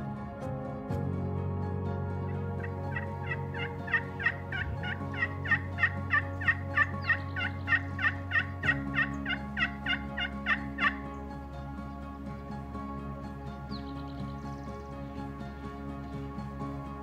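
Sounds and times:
soft background music: 0.0s - 17.0s
turkey call yelps: 2.9s - 11.0s.

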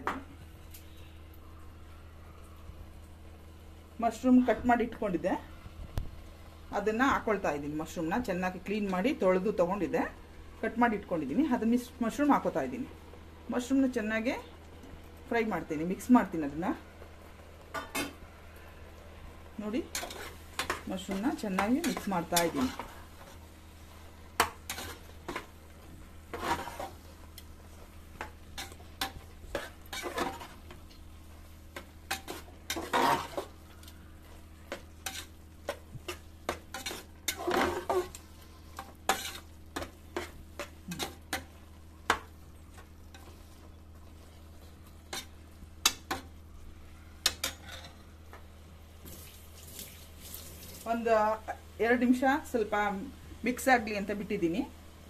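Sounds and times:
mushrooms sizzling: 6.2s - 55.0s
spatula scraping metal pot: 24.4s - 25.5s, 26.3s - 27.5s, 28.2s - 30.8s, 31.8s - 33.9s, 34.7s - 41.5s.

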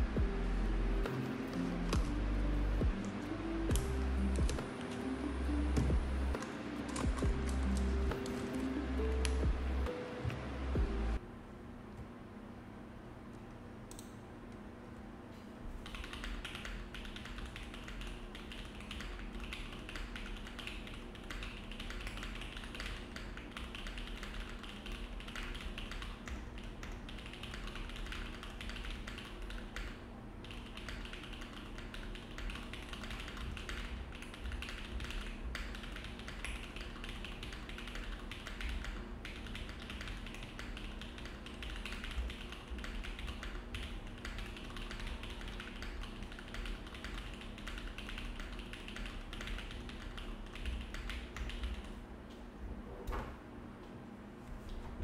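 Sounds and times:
fast typing on mechanical keyboard: 15.8s - 52.0s.

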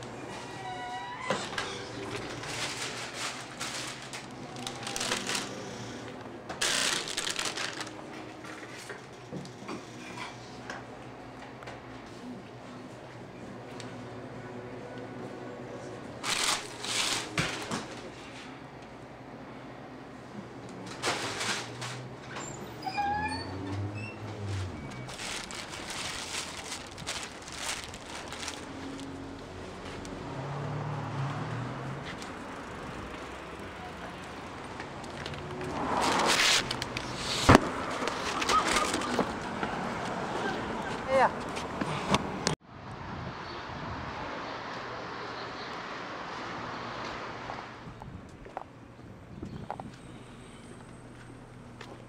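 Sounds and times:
passing traffic: 0.0s - 8.8s, 13.3s - 52.0s
handling noise: 24.6s - 30.0s.

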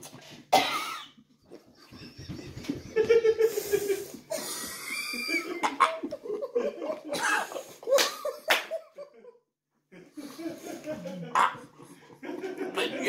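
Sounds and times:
man laughing: 1.7s - 9.4s, 12.2s - 13.0s.

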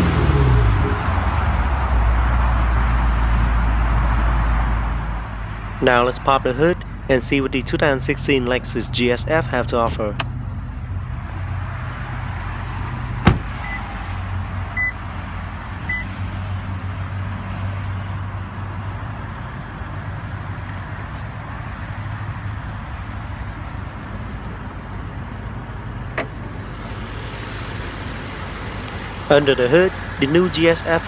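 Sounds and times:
car engine idling: 16.6s - 31.0s.

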